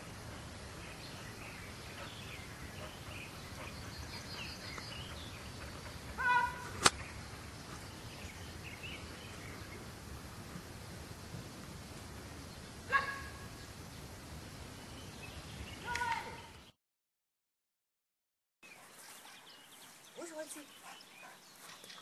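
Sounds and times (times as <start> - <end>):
birds chirping: 0.0 - 11.1, 11.9 - 16.8, 18.6 - 22.0
outdoor background noise: 0.0 - 16.8, 18.6 - 22.0
sharp crack: 6.7 - 7.1.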